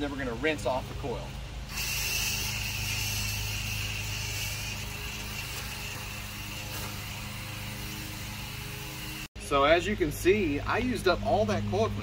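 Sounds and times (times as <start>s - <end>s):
sprayer hissing: 1.7s - 9.3s.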